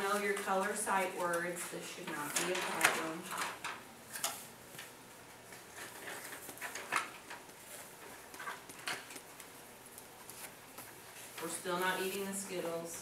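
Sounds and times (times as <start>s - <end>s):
paper rustling: 5.5s - 12.7s.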